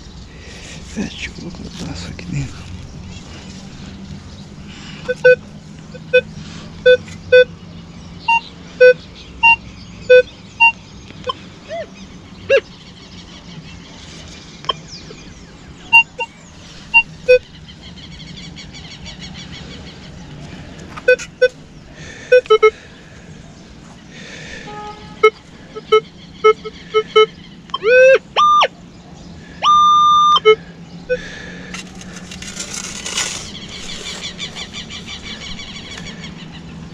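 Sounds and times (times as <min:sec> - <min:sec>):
metal detector beeps: 0:05.0 - 0:07.5, 0:08.3 - 0:11.4, 0:15.9 - 0:16.3, 0:17.0 - 0:17.4, 0:21.0 - 0:21.6, 0:22.3 - 0:22.7, 0:24.7 - 0:28.7, 0:29.6 - 0:33.9.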